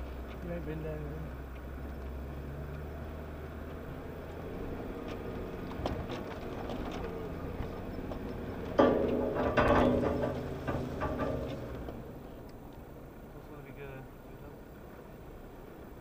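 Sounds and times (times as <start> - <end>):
vehicle engine low hum: 0.0 - 16.0
knocks and clunks: 5.0 - 12.2.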